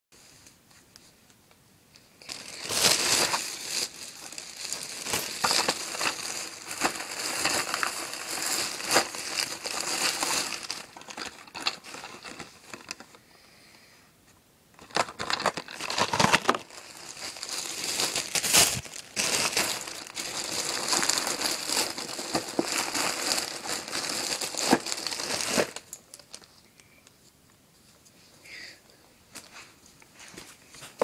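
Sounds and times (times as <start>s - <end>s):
plastic bags crinkling: 2.2s - 13.1s, 14.8s - 26.6s.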